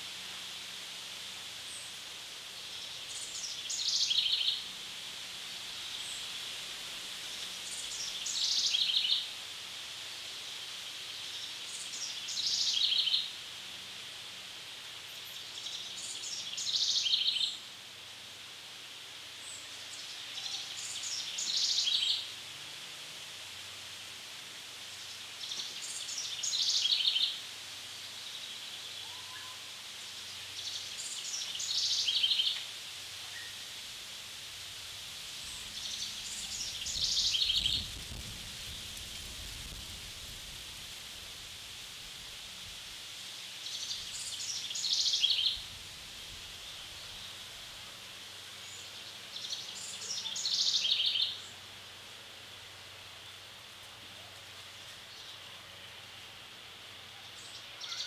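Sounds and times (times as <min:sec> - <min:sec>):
forest ambience hiss: 0:00.0 - 0:58.0
songbird singing: 0:01.6 - 0:06.4, 0:07.2 - 0:09.4, 0:10.2 - 0:14.0, 0:15.0 - 0:17.8, 0:18.8 - 0:22.6, 0:24.6 - 0:58.0.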